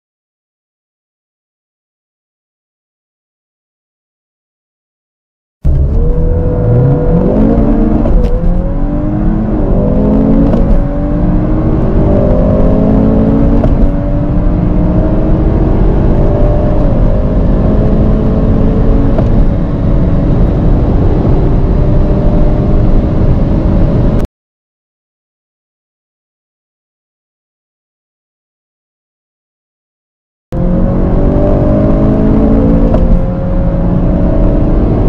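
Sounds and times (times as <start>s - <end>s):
car engine accelerating: 5.6s - 24.3s, 30.6s - 35.0s.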